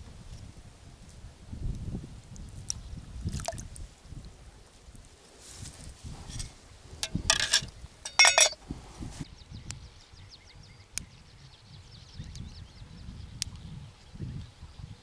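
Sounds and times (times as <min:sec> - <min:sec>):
hard objects clinking: 0:06.3 - 0:08.6.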